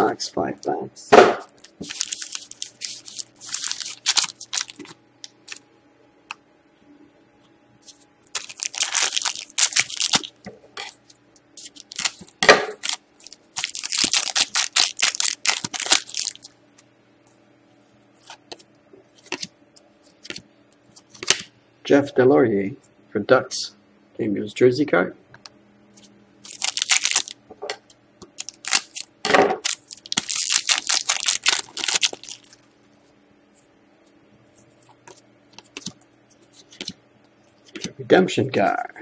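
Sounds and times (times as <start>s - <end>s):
foil wrappers crinkling: 1.5s - 5.6s, 8.3s - 11.0s, 11.6s - 16.6s, 26.4s - 27.4s, 28.4s - 32.6s.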